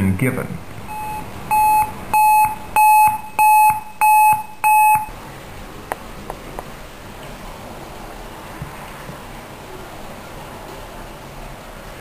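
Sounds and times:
recorded announcement: 0.0 - 5.2
short electronic beeps: 0.8 - 5.1.

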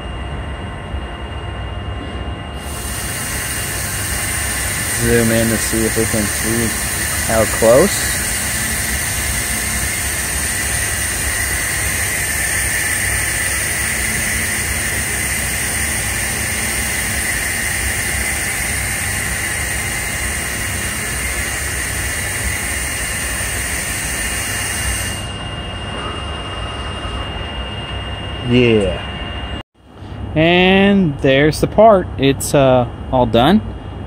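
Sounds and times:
low machine rumble: 0.0 - 34.0
large printer machine hiss: 2.6 - 27.5.

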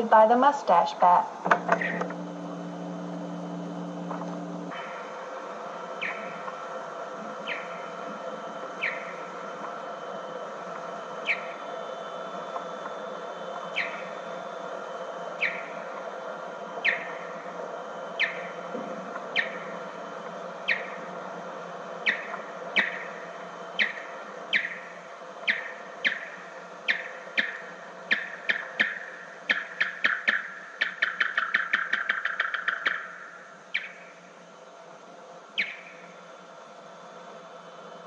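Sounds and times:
tape hiss and hum: 0.0 - 38.0
slowed bat echolocation chirps: 5.8 - 6.5, 7.4 - 10.2, 11.1 - 20.0, 20.6 - 21.1, 22.0 - 34.4, 35.5 - 36.2.

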